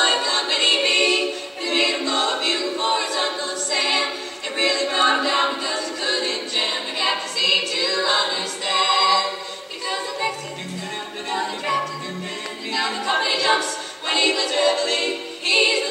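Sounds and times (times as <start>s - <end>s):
women singing in harmony: 0.0s - 15.9s
low voice line: 10.2s - 12.4s.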